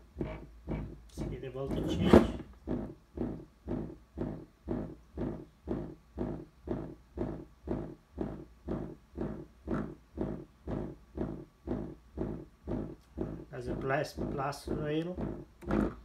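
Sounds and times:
low speaker pulses: 0.0s - 16.0s.

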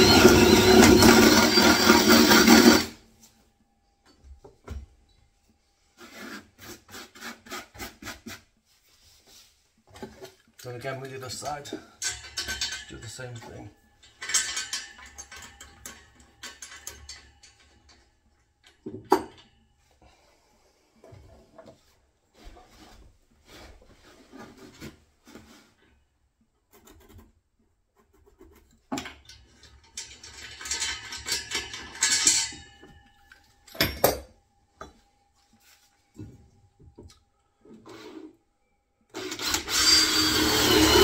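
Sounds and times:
scraping and rasping: 6.0s - 9.6s.

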